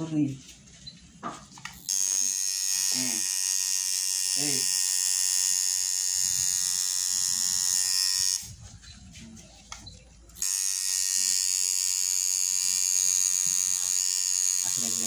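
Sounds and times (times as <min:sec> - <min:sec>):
tattoo machine buzzing: 0:01.6 - 0:08.5, 0:10.4 - 0:15.0.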